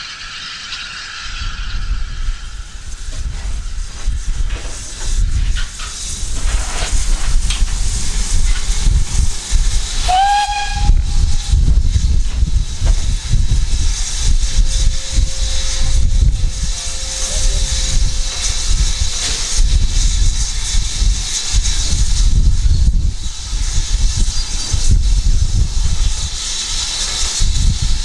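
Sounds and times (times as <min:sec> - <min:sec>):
steam hissing: 0:00.0 - 0:28.0
deep uneven rumble: 0:01.3 - 0:28.0
steam whistle blast: 0:10.0 - 0:11.7.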